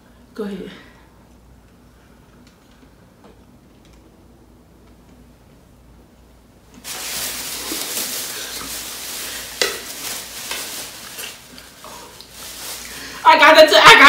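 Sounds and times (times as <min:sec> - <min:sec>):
sharp plastic crackle: 0:06.8 - 0:13.2
plastic bags rustling: 0:06.8 - 0:14.0.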